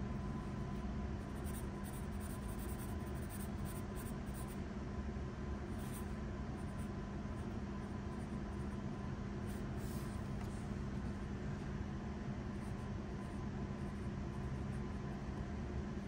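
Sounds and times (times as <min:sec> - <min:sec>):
steady low hum: 0:00.0 - 0:16.0
pencil scratching on paper: 0:01.3 - 0:04.5.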